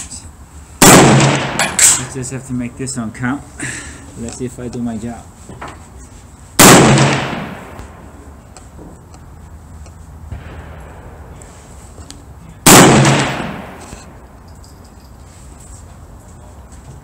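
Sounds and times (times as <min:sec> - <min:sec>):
rifle shot echoing: 0:00.8 - 0:02.1, 0:06.6 - 0:08.1, 0:10.3 - 0:11.4, 0:12.6 - 0:14.1.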